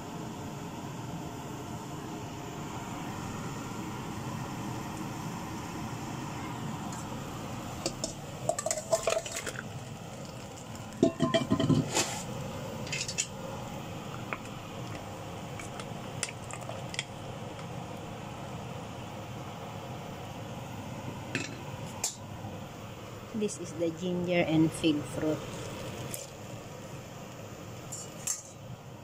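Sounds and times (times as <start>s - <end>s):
steady hum: 0.0s - 29.0s
metal pot clanking: 7.8s - 9.7s, 11.0s - 12.1s, 12.9s - 13.4s, 27.9s - 28.6s.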